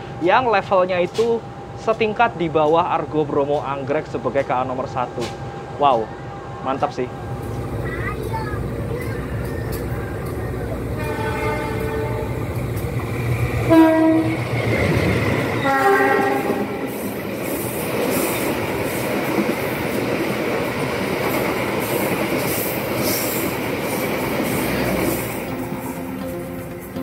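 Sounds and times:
train wheels clattering over rails: 7.4 - 26.8
train horn blasts: 10.9 - 12.4, 13.6 - 14.5, 15.6 - 17.0.

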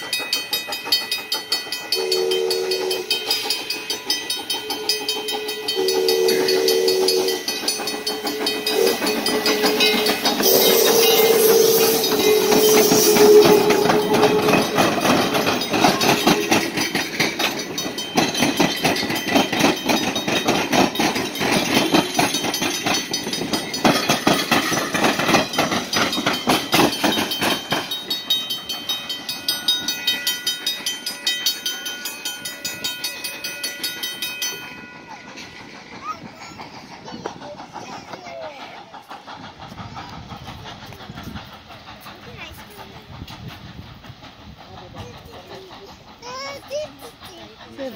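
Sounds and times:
crossing bell ringing: 0.0 - 37.0
steam hissing: 0.0 - 47.9
train wheels clacking over rails: 0.0 - 47.9
held whistle tone: 8.5 - 14.8.

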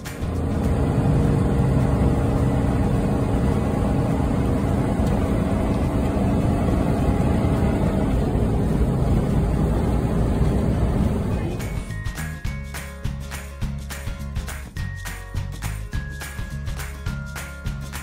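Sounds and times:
engine drone and road noise: 0.0 - 12.4.

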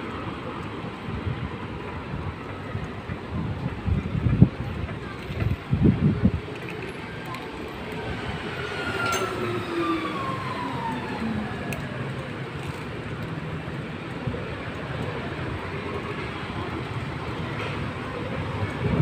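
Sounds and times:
tyres rolling over tiled pavement: 0.0 - 19.0
wind on microphone: 1.1 - 6.6, 18.1 - 19.0.

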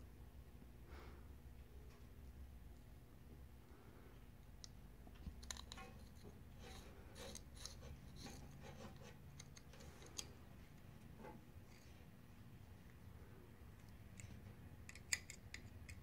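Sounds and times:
screwdriver scratching and clicking: 6.6 - 10.3.

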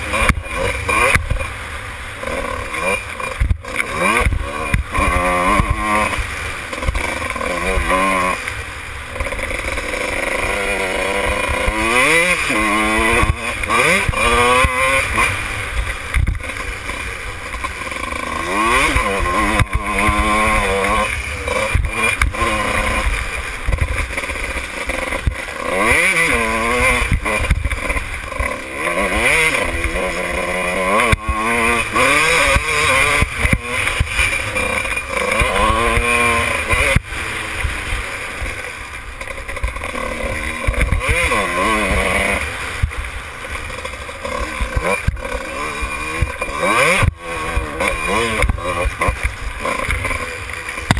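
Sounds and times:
motorcycle engine revving: 0.0 - 50.9.

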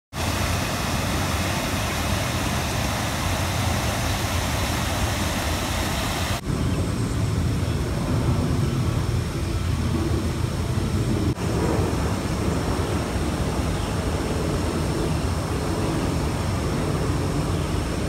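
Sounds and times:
water running down a channel: 0.1 - 6.4.

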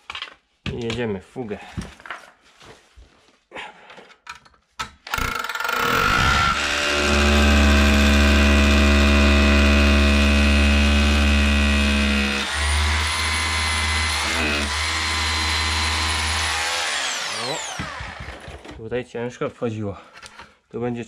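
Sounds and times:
electric drill boring into tile grout: 5.1 - 18.8.

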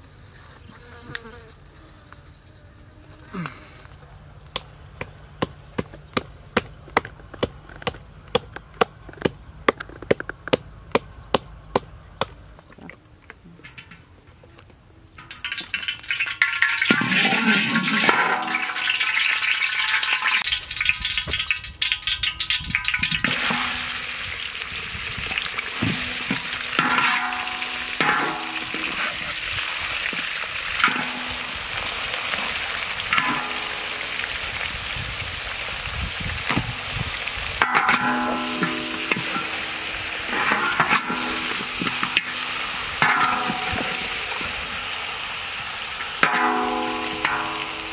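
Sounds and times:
meat sizzling in hot oil: 15.2 - 47.9
metal spatula scraping pan: 25.7 - 29.4, 37.6 - 44.2.

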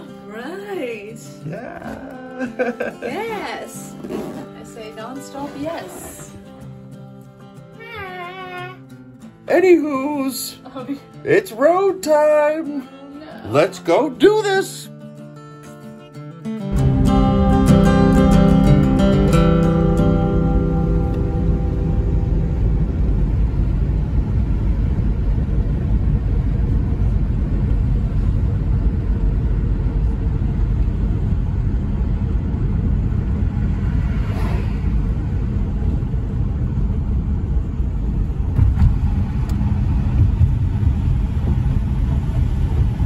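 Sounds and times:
car road rumble from inside: 21.1 - 43.0
oncoming car passing: 30.4 - 43.0.

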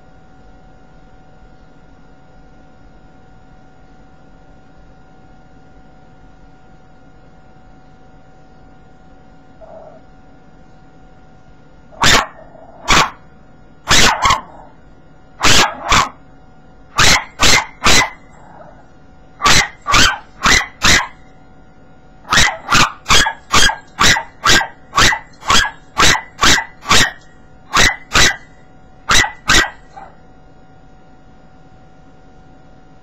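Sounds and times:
small dog barking: 11.9 - 13.2, 13.9 - 14.8, 15.4 - 16.2, 16.9 - 18.8, 19.4 - 21.3, 22.2 - 30.2.

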